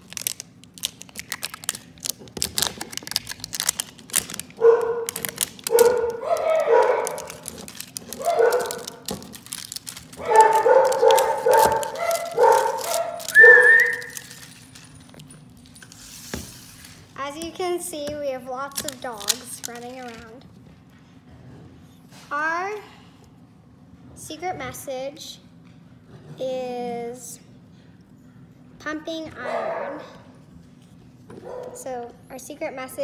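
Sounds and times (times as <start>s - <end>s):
wrapper crinkling and tearing: 0.0s - 15.8s, 18.7s - 20.4s
dogs barking and yipping: 4.6s - 9.1s, 10.2s - 14.6s.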